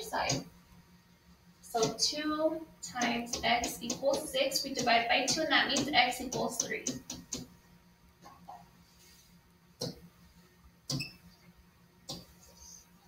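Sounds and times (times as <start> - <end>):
stylus tapping a screen: 1.8 - 2.1, 2.9 - 7.6, 9.8 - 10.0, 10.9 - 11.2.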